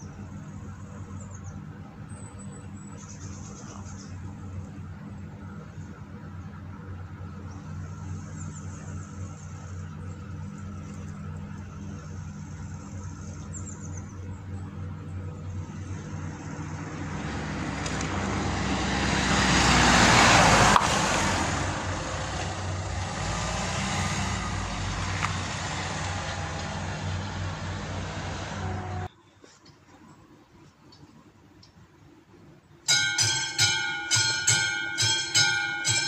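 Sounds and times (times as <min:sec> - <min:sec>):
low engine hum: 0:00.0 - 0:29.1
van crossing level crossing: 0:00.0 - 0:29.1
car passing by: 0:15.8 - 0:29.1.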